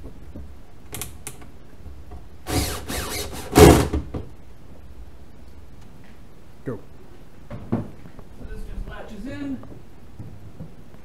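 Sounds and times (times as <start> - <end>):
cordless drill on metal: 2.5 - 3.9.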